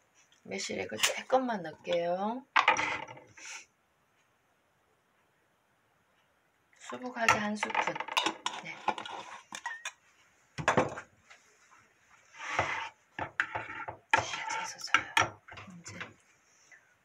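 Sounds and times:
utensils knocking on wooden board: 7.2s - 9.2s
metal spoon scraping ceramic bowl: 7.3s - 10.0s, 12.4s - 16.0s.

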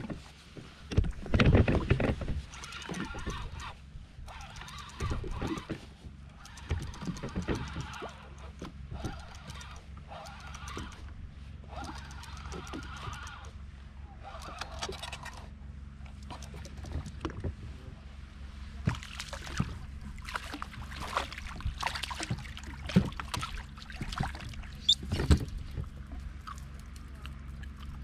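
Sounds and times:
steady low hum: 0.0s - 28.0s
fish thrashing and splashing: 18.9s - 28.0s.

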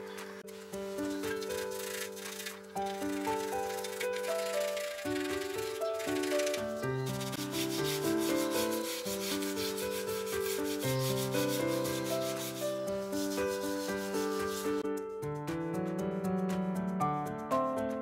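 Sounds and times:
background music: 0.0s - 18.0s
brush scrubbing metal fins: 0.6s - 14.8s.

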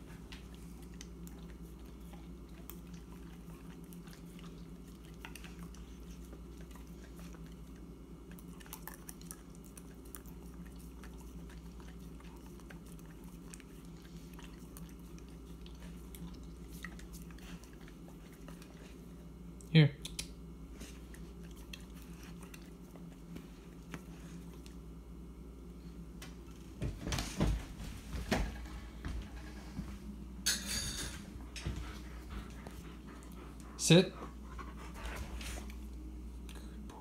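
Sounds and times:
dog licking and chewing: 0.0s - 25.0s, 31.4s - 37.0s
steady low hum: 0.0s - 37.0s.

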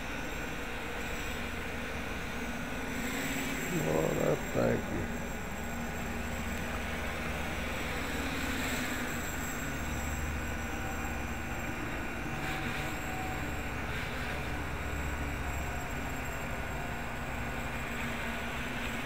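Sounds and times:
distant quadcopter whirring: 0.0s - 19.0s
steady hiss: 2.1s - 9.0s.

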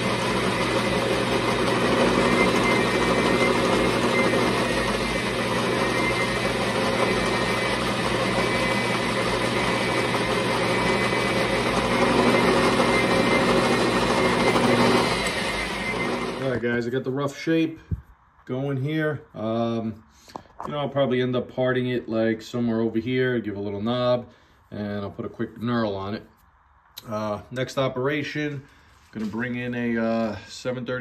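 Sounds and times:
metal lathe humming: 0.0s - 16.6s.

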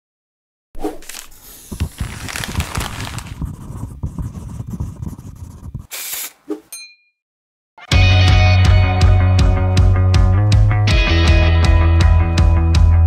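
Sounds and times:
scratchy scraping and rustling: 1.0s - 5.9s.

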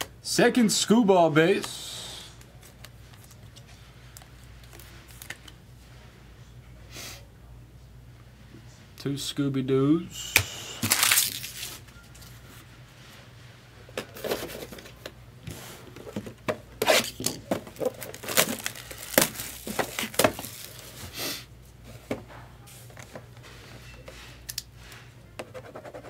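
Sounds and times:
foil wrappers tearing and crinkling: 10.8s - 11.8s, 17.7s - 21.0s
handling noise: 15.9s - 21.0s.

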